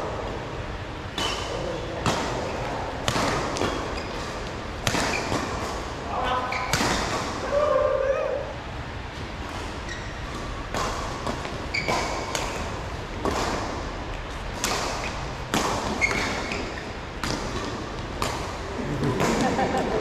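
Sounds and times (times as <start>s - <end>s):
rackets striking shuttlecock: 1.2s - 5.9s, 10.3s - 13.9s, 14.5s - 19.9s
shoe squeaks: 3.6s - 4.2s, 5.0s - 5.4s, 6.4s - 6.9s, 9.8s - 10.6s, 11.7s - 12.3s, 15.9s - 17.0s.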